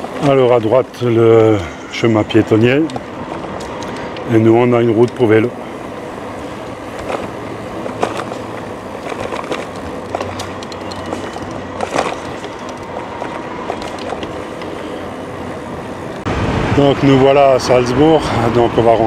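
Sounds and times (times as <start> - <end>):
bicycle rolling on pavement: 0.0 - 19.0
clicks and rattles from bumps: 6.6 - 14.8.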